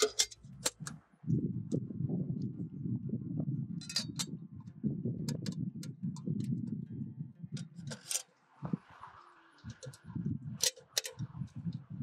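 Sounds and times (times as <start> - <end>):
metal frame clicks and knocks: 0.0 - 1.0, 3.8 - 4.4, 7.6 - 8.3, 10.6 - 11.4.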